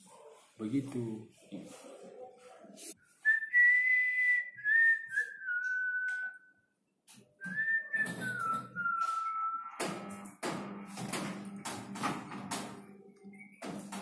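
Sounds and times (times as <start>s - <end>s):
man whistling a slow tune: 3.2s - 6.5s, 7.4s - 9.7s.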